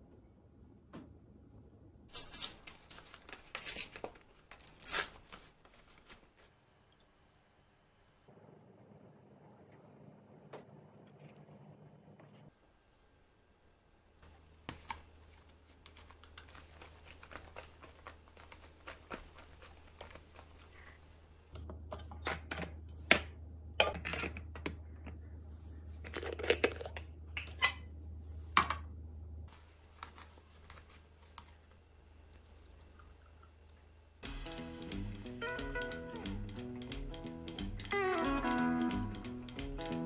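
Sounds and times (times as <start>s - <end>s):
paper carton crinkling: 2.1s - 6.5s, 14.6s - 21.0s, 29.6s - 31.7s
glass jars clinking: 21.9s - 25.2s, 26.0s - 27.8s.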